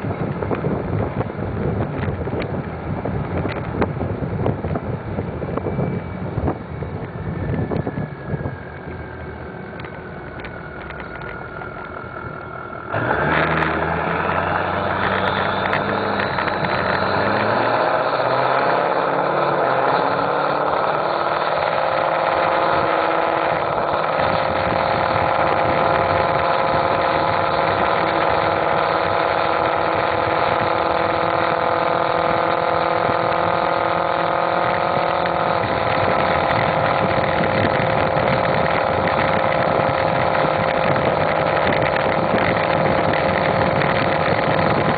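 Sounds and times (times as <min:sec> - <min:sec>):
diesel engine revving under load: 0:09.4 - 0:44.9
high turbo whistle: 0:12.0 - 0:31.1.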